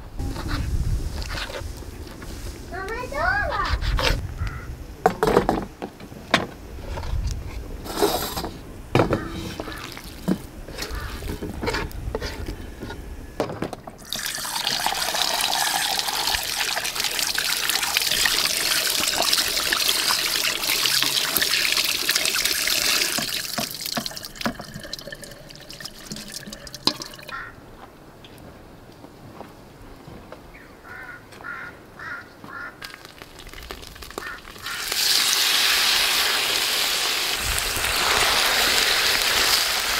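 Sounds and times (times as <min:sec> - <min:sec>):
tap water running into colander: 0:14.0 - 0:27.4.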